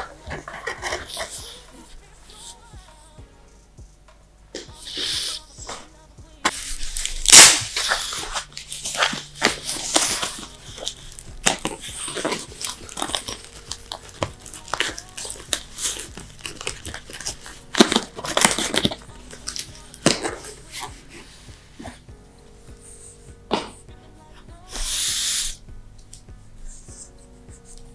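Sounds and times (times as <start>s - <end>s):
packaging crinkling and tearing: 6.5s - 20.9s.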